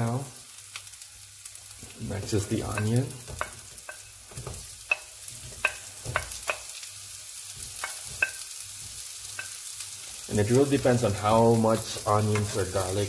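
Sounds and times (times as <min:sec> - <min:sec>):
garlic sizzling in oil: 0:00.0 - 0:13.0
spatula knocking on pan: 0:02.4 - 0:06.8, 0:07.5 - 0:09.6, 0:12.3 - 0:12.6.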